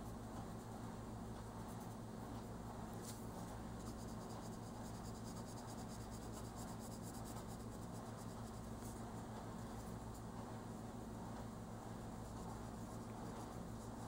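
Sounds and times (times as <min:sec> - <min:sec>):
low steady hum: 0:00.0 - 0:14.0
pencil scratching on paper: 0:03.8 - 0:09.0, 0:11.9 - 0:14.0.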